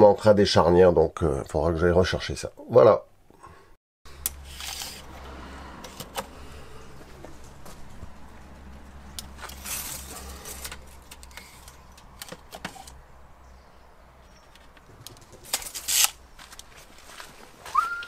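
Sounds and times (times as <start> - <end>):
tape measure clicking and rattling: 4.3 - 5.1, 15.0 - 16.2.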